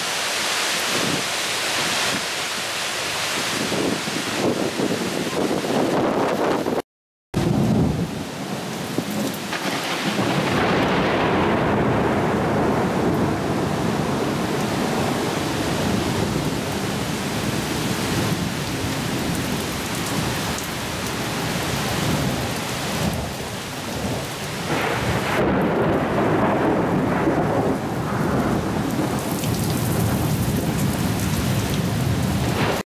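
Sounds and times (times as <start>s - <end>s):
heavy rain pouring: 0.0s - 6.8s, 7.4s - 32.8s
thunder rolling: 7.4s - 8.2s, 9.5s - 17.0s, 24.0s - 32.8s.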